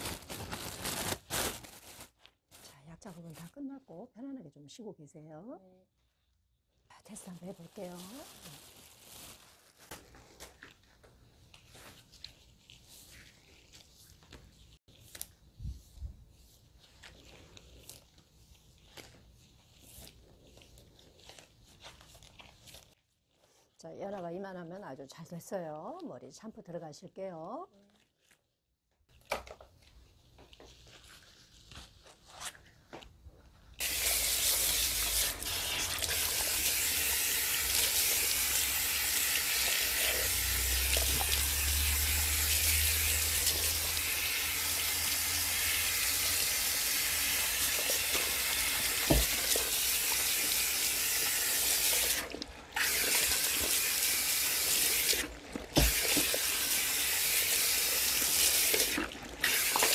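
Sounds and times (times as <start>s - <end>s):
hand sprayer water hissing: 33.8s - 59.9s.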